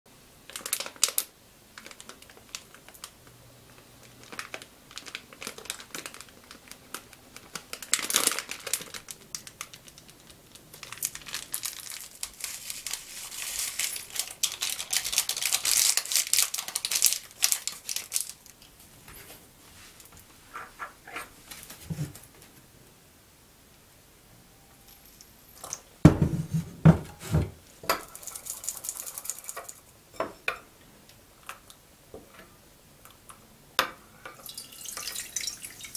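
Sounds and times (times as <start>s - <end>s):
plastic wrapper crinkling and tearing: 0.5s - 18.8s
powder crackling into glass bowl: 0.5s - 18.8s, 27.9s - 30.0s, 34.3s - 35.9s.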